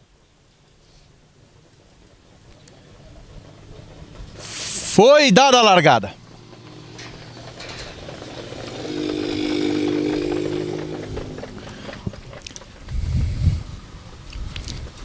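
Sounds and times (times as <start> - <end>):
truck engine running: 1.2 - 13.0
low rumble: 6.2 - 13.4.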